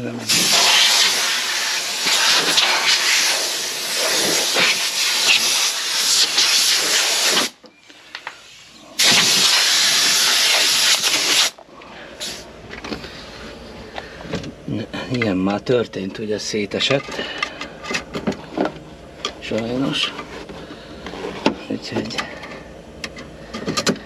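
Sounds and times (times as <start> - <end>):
compressed air blowgun blasting: 0.3 - 7.6, 9.0 - 11.6.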